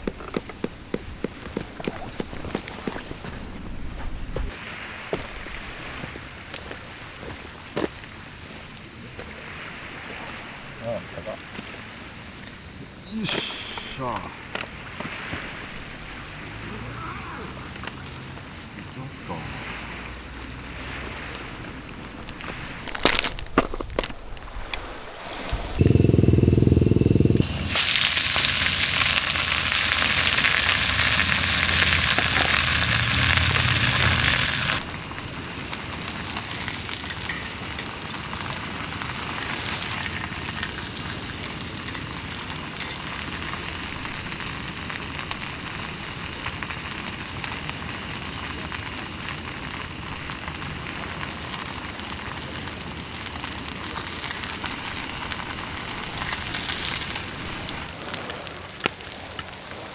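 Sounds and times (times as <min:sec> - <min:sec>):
tofu sizzling in oil: 0:27.4 - 0:59.9
brief low rumble: 0:30.8 - 0:34.8.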